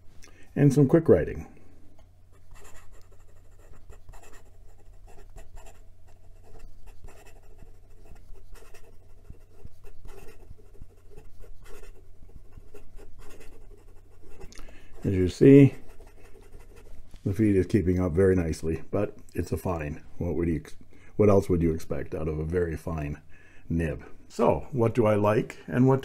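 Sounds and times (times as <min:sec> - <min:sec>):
fountain pen scratching on paper: 0:02.3 - 0:17.0.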